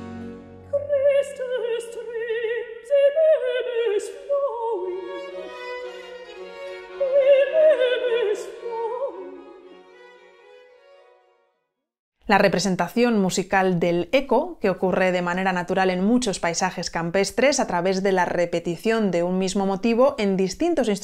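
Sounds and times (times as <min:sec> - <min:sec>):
quiet string accompaniment: 0:00.0 - 0:01.5, 0:04.6 - 0:11.5.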